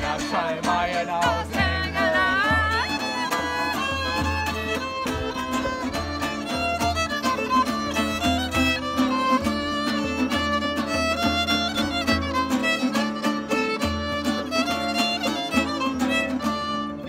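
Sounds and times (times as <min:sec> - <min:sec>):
hand drum beating: 0:00.0 - 0:16.6
fiddle melody: 0:00.0 - 0:17.0
picked string instrument: 0:00.0 - 0:17.0.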